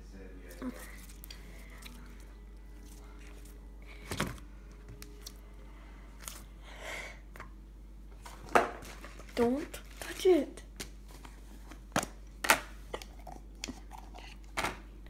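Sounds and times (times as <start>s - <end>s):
hands kneading slime: 0.5s - 4.2s.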